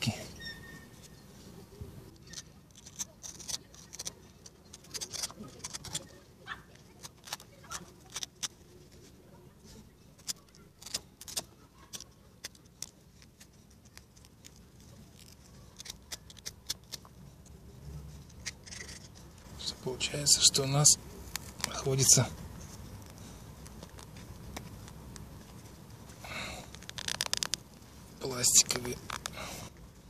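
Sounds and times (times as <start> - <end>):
utility knife cutting plastic: 2.2 - 9.1, 10.1 - 17.2, 18.2 - 19.4, 26.6 - 27.7.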